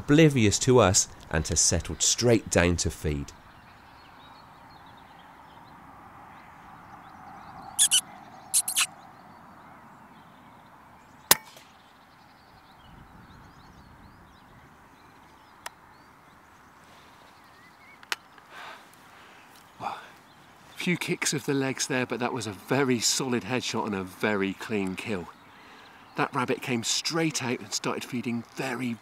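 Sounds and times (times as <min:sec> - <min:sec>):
high squeaking: 0:07.8 - 0:08.0, 0:08.6 - 0:08.9.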